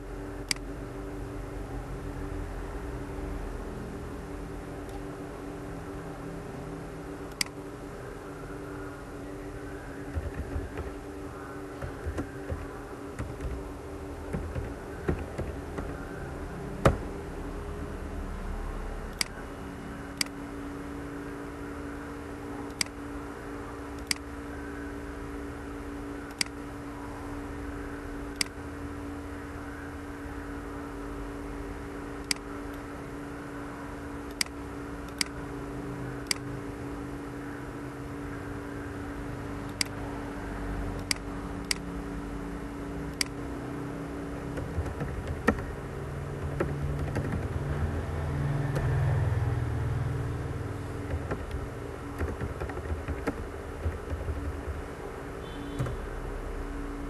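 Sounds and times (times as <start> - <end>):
low hum: 0.0 - 57.0
computer mouse clicking: 0.4 - 0.7, 7.3 - 7.6, 10.0 - 11.0, 11.8 - 13.6, 19.1 - 19.4, 22.6 - 23.0, 23.9 - 24.3, 26.3 - 26.6, 32.2 - 32.8, 34.3 - 35.4, 36.2 - 36.5, 39.6 - 40.0, 41.0 - 41.9, 43.1 - 43.4, 44.5 - 45.8, 46.4 - 47.7, 51.0 - 54.9
keyboard typing: 10.0 - 16.2, 44.4 - 47.7, 50.9 - 55.0.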